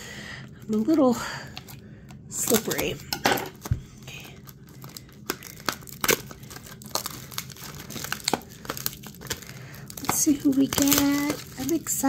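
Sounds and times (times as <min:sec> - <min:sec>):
plastic wrap crinkling and tearing: 0:02.4 - 0:12.0.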